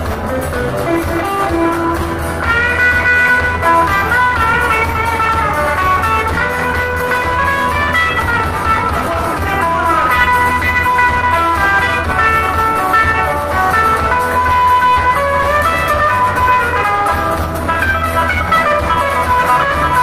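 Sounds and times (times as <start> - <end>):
lead guitar melody: 0.0 - 20.0
live band playing a reel: 0.0 - 20.0.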